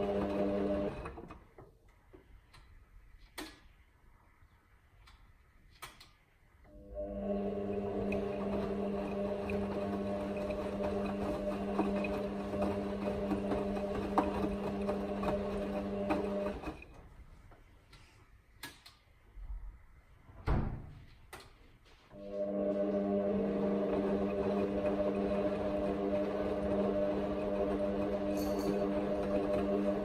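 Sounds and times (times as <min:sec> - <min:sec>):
washing machine drum motor humming: 0:00.0 - 0:01.2, 0:07.0 - 0:17.0, 0:22.3 - 0:30.0.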